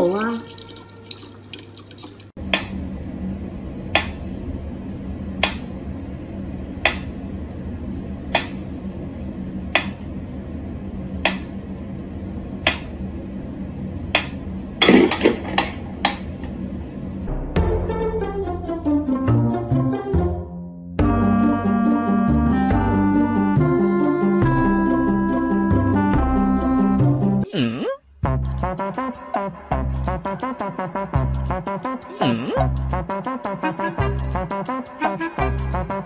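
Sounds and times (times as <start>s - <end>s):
low hum: 2.4s - 18.0s.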